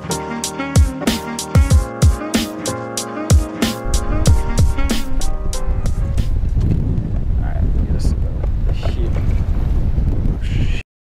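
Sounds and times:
held synth chords: 0.0 - 6.5
deep kick drums: 3.3 - 7.2.

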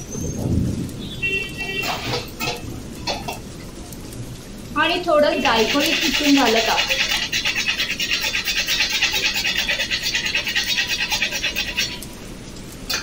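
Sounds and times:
nutmeg grating on metal grater: 5.5 - 12.0.

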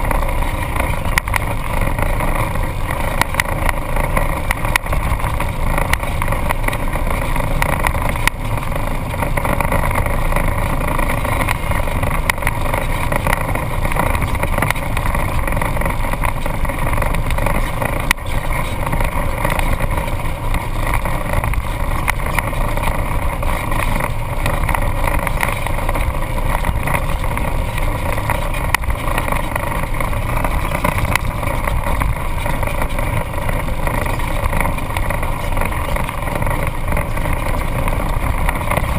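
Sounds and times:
vehicle engine droning: 0.0 - 38.9.

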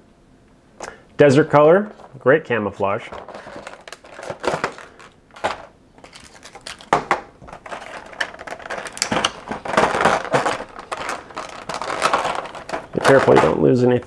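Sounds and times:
plastic tray crackling and clicking: 3.1 - 13.6.

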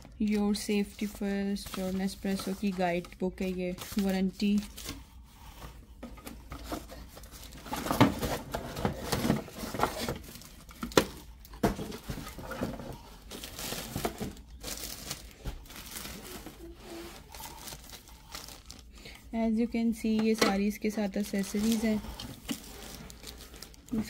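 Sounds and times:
plastic wrap crinkling: 11.8 - 19.2, 21.0 - 24.0.

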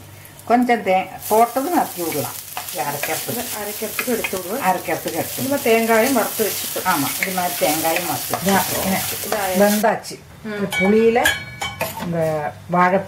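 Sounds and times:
spices sizzling in oil: 0.0 - 9.9
wooden spatula scraping a wok: 1.4 - 9.8.

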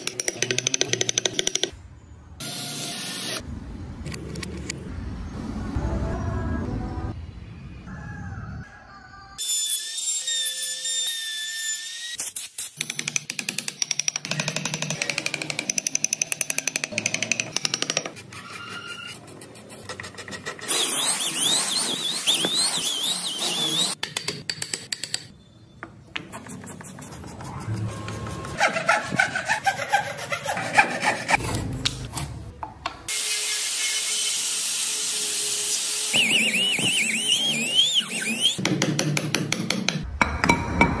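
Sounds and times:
carving tool scraping wood: 26.4 - 31.5.

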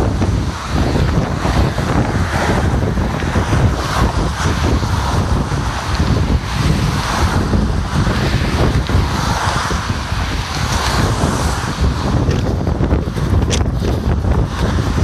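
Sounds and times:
car traffic passing: 0.0 - 15.0
wind buffeting microphone: 0.0 - 15.0.

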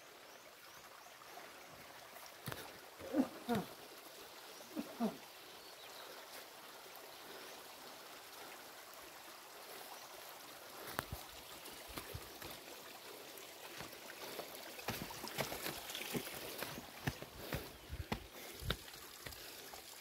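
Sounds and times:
stream trickling over stones: 0.0 - 20.0
footsteps on rocky path: 2.4 - 3.1, 10.8 - 12.7, 13.6 - 19.6.

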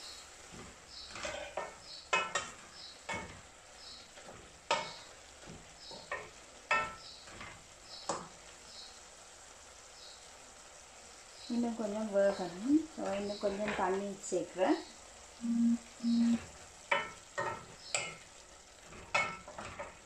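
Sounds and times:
wooden spatula scraping a pan: 0.3 - 8.2.

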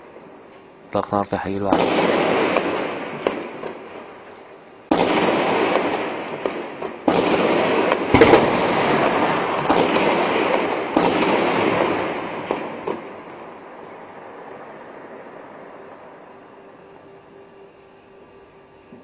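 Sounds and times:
loud gunshot crack: 1.6 - 4.0, 4.9 - 13.5
heavy gunfire bursts: 1.7 - 4.0, 4.9 - 13.2.

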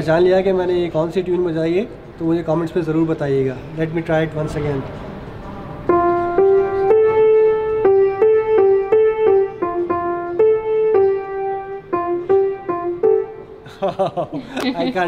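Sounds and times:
grand piano playing simple tune: 5.8 - 13.7.

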